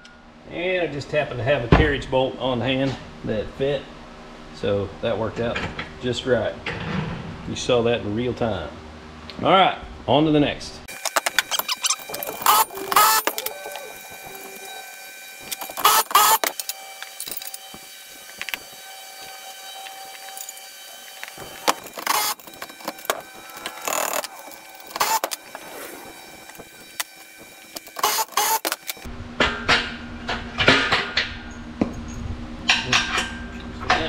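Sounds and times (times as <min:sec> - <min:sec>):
steel parts clanking: 0:10.9 - 0:29.1.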